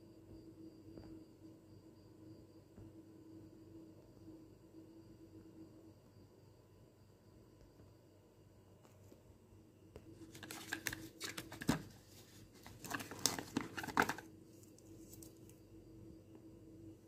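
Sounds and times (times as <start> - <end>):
cardboard carton crinkling: 10.2 - 15.4.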